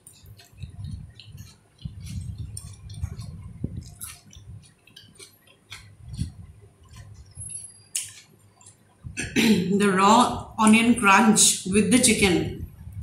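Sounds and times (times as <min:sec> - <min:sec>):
person chewing food: 0:00.0 - 0:09.2
crunches and mouth clicks: 0:00.0 - 0:09.4.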